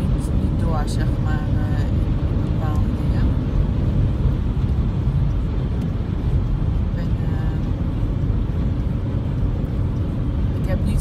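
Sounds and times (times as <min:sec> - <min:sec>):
car cabin road and engine rumble: 0:00.0 - 0:11.0.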